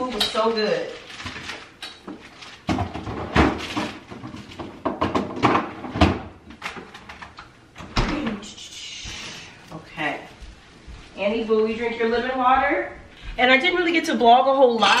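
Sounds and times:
rustling: 0:00.4 - 0:04.6
household objects knocking: 0:02.7 - 0:06.2.

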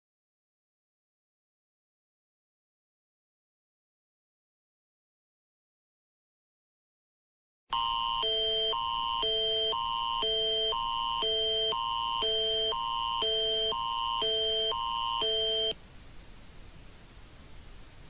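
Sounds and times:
alternating high alert chords: 0:07.8 - 0:15.8
faint hiss: 0:15.8 - 0:18.0.

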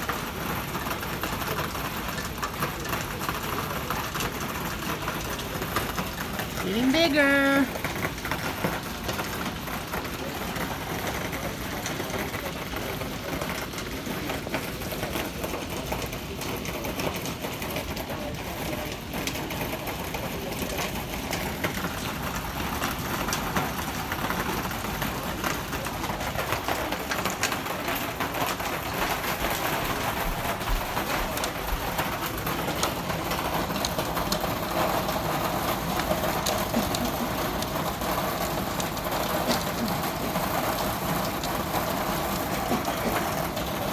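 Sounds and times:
hail and heavy rain pelting: 0:00.0 - 0:43.9.

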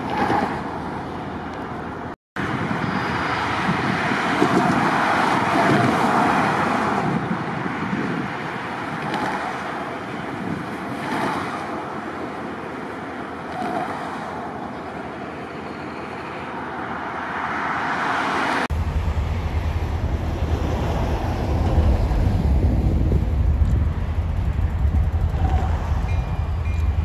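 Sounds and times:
road traffic: 0:00.0 - 0:27.0
deep low rumble: 0:18.7 - 0:27.0.

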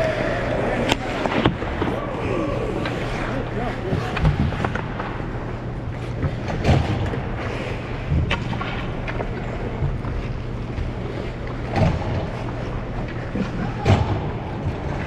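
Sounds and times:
low steady hum: 0:00.0 - 0:15.0
ice skates scraping on ice: 0:00.2 - 0:06.5.

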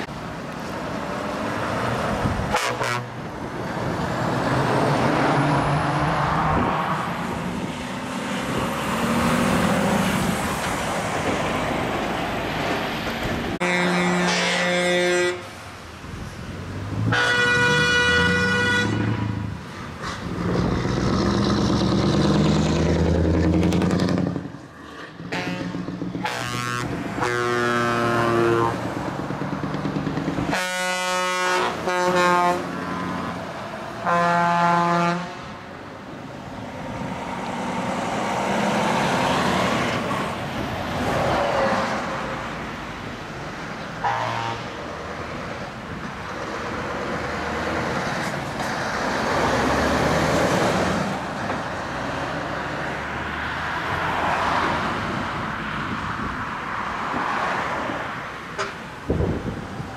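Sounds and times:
passing traffic: 0:00.0 - 0:59.9
truck air horn blasts: 0:02.5 - 0:03.2, 0:13.6 - 0:15.6, 0:17.1 - 0:19.4, 0:25.2 - 0:28.8, 0:30.5 - 0:33.0, 0:34.0 - 0:35.5, 0:44.0 - 0:44.8.

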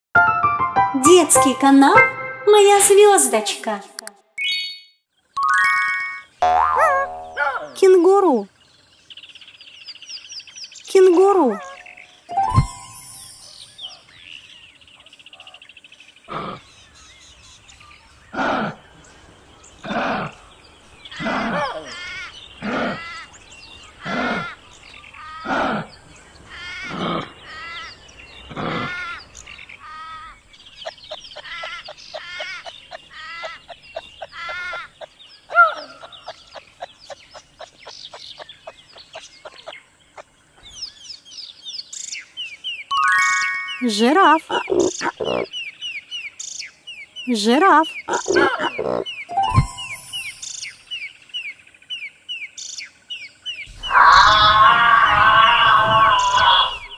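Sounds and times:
kangaroo throaty calls: 0:16.3 - 0:16.8, 0:18.3 - 0:18.9, 0:19.8 - 0:30.4, 0:44.5 - 0:45.5, 0:48.0 - 0:49.1, 0:53.7 - 0:56.9.

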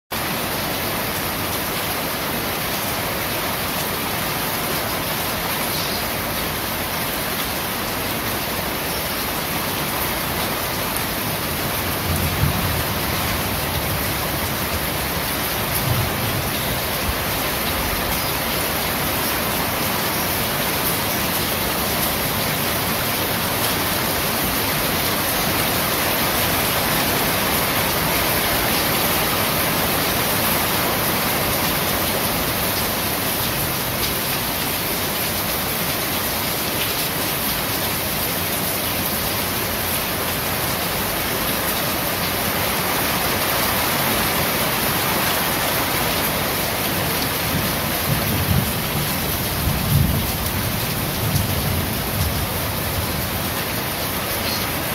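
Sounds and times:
rain on a corrugated roof: 0:00.1 - 0:54.9.

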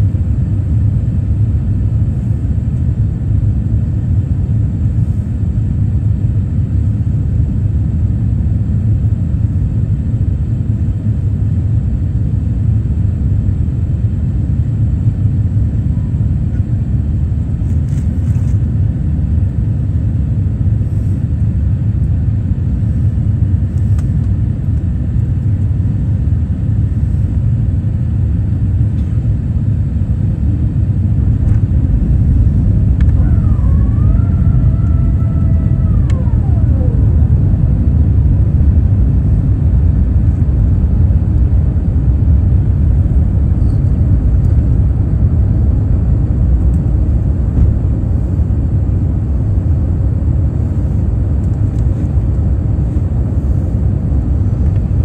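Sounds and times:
jet airliner cabin rumble: 0:00.0 - 0:55.0
whining tone sliding in pitch: 0:33.0 - 0:37.8.

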